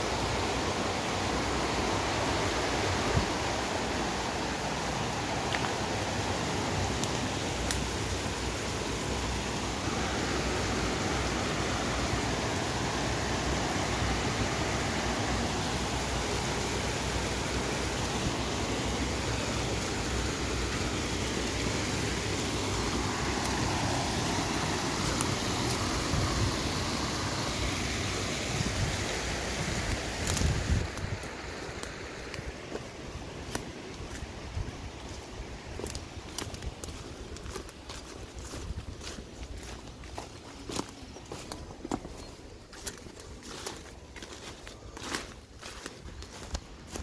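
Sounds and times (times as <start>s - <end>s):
brook water flowing: 0.0s - 47.0s.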